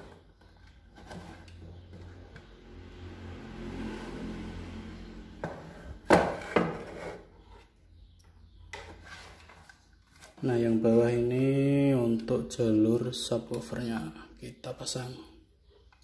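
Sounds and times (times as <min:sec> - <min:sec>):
box sliding on wooden desk: 0:05.4 - 0:07.3.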